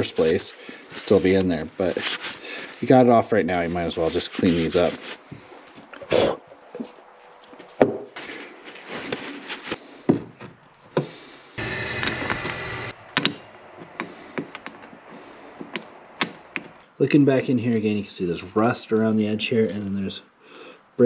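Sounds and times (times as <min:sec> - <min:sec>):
paper towel rubbing on metal: 0:00.0 - 0:05.3.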